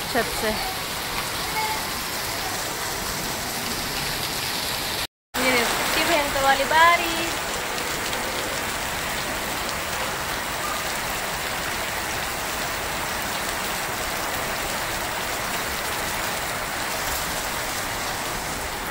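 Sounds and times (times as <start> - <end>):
heavy rain: 0.0 - 18.9.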